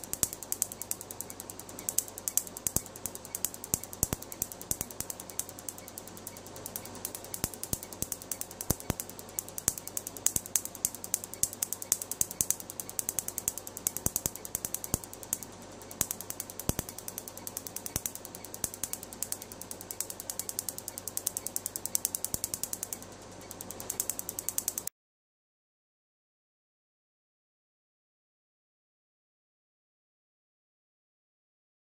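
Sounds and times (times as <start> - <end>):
faint hum: 0.0 - 24.9
laser pulses snapping: 0.0 - 24.9.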